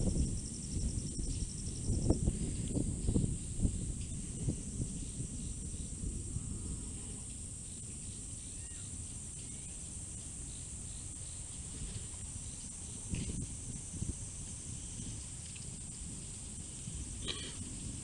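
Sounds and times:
insects chorus: 0.0s - 18.0s
low gusty rumble: 0.0s - 18.0s
faint chirps: 6.8s - 13.4s.

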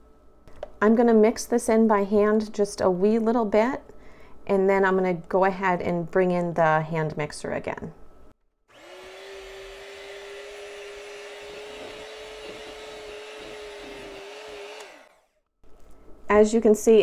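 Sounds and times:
electric hand mixer running: 8.7s - 15.4s.

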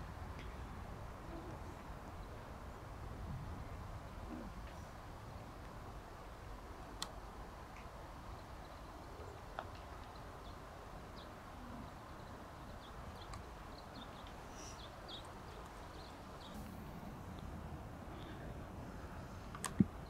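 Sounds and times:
faint bird chirps: 7.8s - 16.8s.

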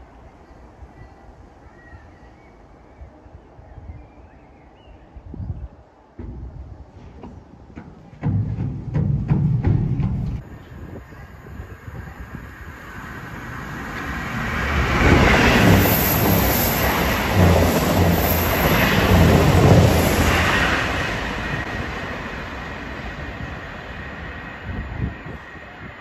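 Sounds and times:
train passing with heavy rumble: 5.3s - 26.0s.

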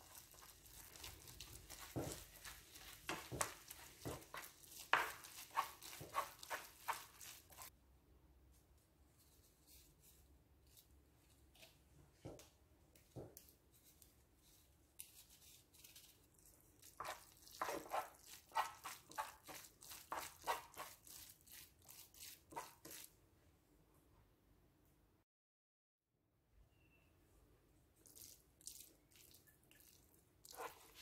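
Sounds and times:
wooden spoon stirring noodles in pan: 0.0s - 7.8s, 16.8s - 23.1s, 29.2s - 31.0s.

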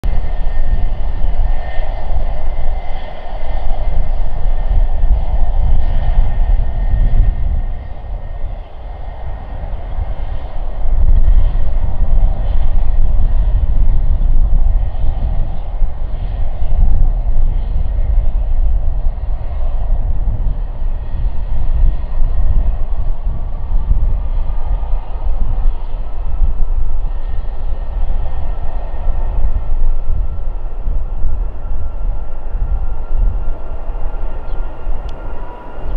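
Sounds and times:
faint rising whine: 0.0s - 35.9s
jet engine rumble and hiss: 0.0s - 35.9s.

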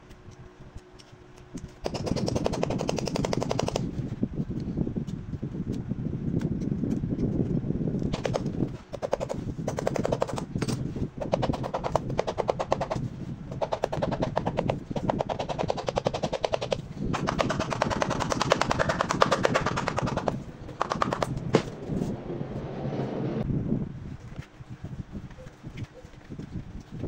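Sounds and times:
tool rasping on shoe leather: 11.4s - 20.4s.

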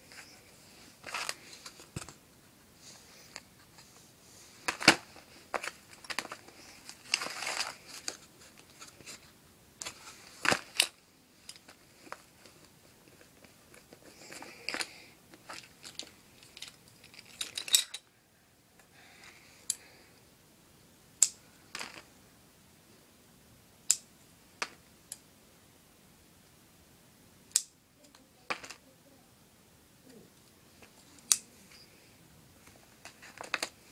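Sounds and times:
plastic tools clicking and tapping: 4.6s - 8.7s, 13.1s - 18.1s, 33.0s - 33.8s.

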